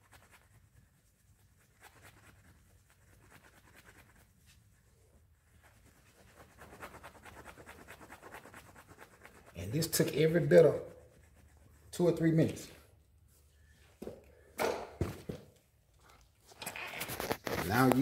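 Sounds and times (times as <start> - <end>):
cloth rubbing on metal wheel: 0.0 - 13.7.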